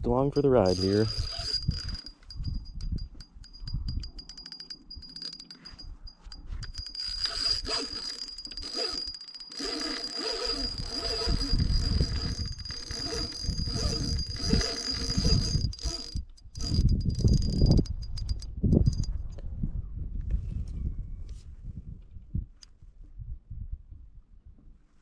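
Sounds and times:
fishing reel drag buzzing: 0:00.6 - 0:19.1.

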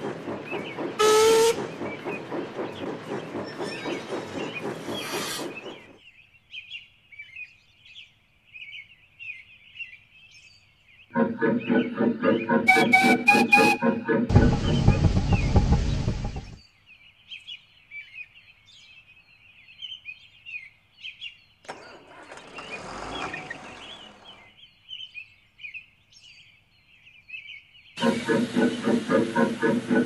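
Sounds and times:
passing train rumble: 0:00.0 - 0:06.0, 0:11.2 - 0:16.6, 0:21.7 - 0:24.6, 0:28.0 - 0:30.0
rush of noise: 0:14.3 - 0:16.6
small birds chirping: 0:22.5 - 0:30.0.

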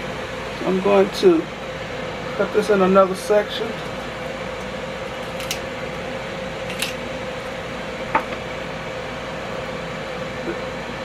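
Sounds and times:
air fryer fan humming: 0:00.0 - 0:11.0
kitchen shears snipping: 0:05.2 - 0:05.7.

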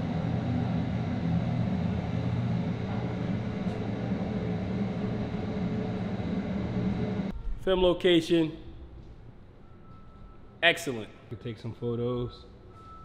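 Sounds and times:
elevator hum: 0:00.0 - 0:07.4.

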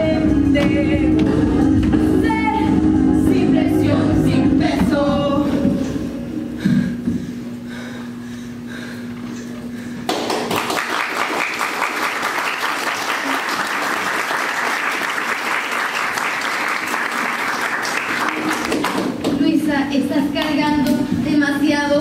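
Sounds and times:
audience applauding: 0:10.1 - 0:19.2.

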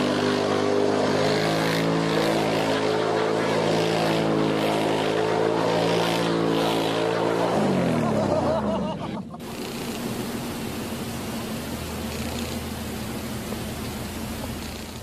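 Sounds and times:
atv engine revving: 0:00.0 - 0:08.6, 0:09.4 - 0:15.0
steady hiss: 0:09.4 - 0:15.0.

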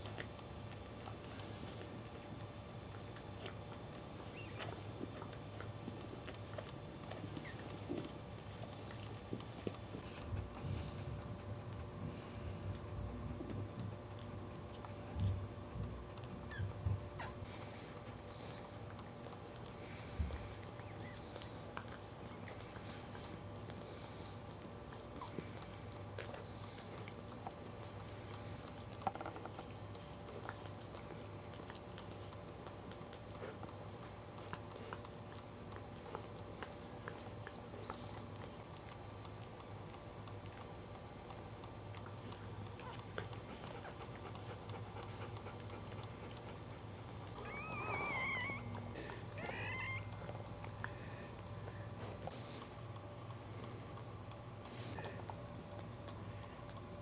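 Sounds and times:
dog licking puppy: 0:00.0 - 0:57.0
low steady hum: 0:00.0 - 0:57.0
puppy crying: 0:47.4 - 0:50.3.

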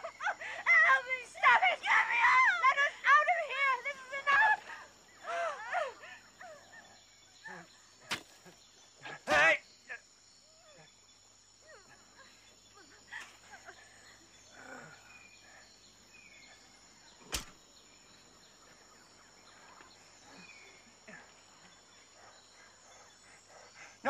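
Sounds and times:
high insect drone: 0:00.0 - 0:24.0
sharp click: 0:17.3 - 0:17.6.

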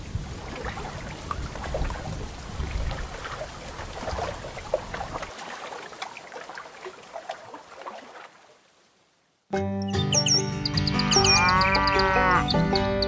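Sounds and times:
rain pattering: 0:00.0 - 0:05.4.

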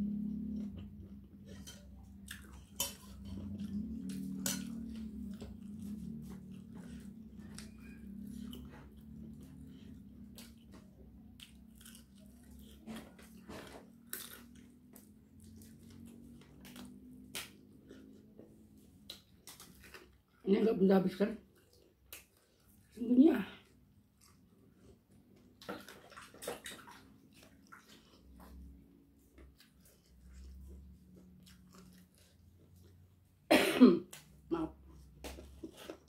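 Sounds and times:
steady low hum: 0:00.0 - 0:19.4
chewing and biting fried food: 0:00.6 - 0:20.4, 0:21.4 - 0:23.0, 0:23.7 - 0:33.5.

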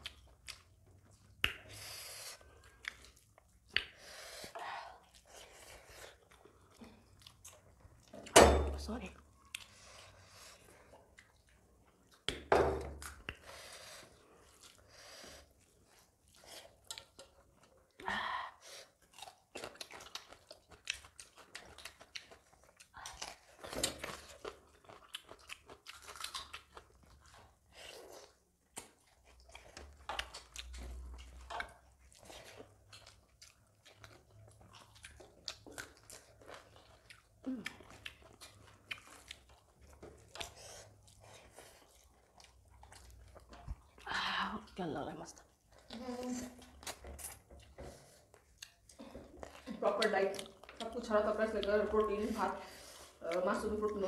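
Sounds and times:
people chewing and eating: 0:00.0 - 0:54.0
wet mouth smacks: 0:01.4 - 0:01.8, 0:03.7 - 0:04.0
food crunching: 0:18.8 - 0:44.1, 0:45.3 - 0:52.3.

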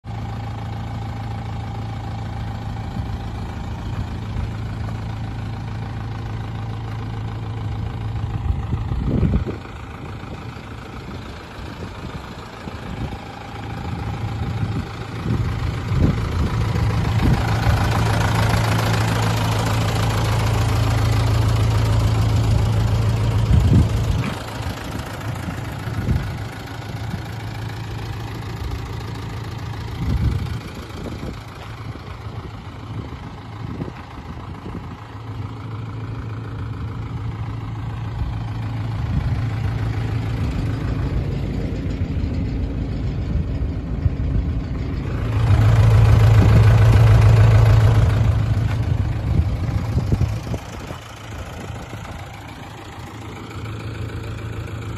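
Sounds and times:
diesel engine idling: 0:00.0 - 0:54.9.

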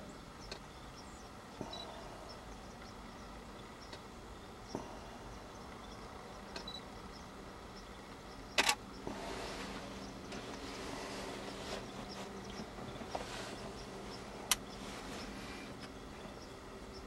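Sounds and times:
faint high chirps: 0:00.1 - 0:17.0
small clicks: 0:06.5 - 0:06.8, 0:08.5 - 0:08.8.

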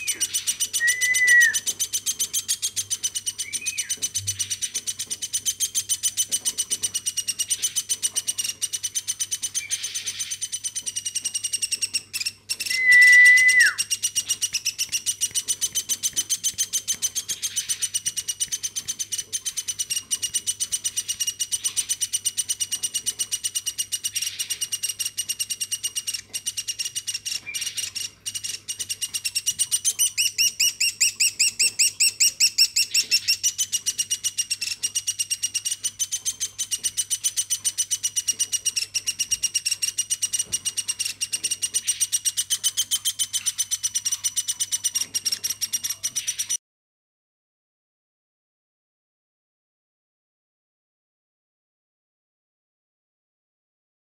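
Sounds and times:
bird chick begging chirps: 0:00.0 - 0:46.6
loud steady whistle: 0:00.8 - 0:01.6, 0:12.7 - 0:13.9.

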